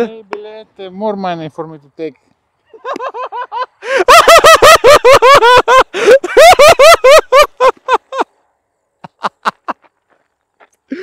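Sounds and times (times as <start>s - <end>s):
man laughing heartily: 2.7s - 8.4s, 9.0s - 9.9s.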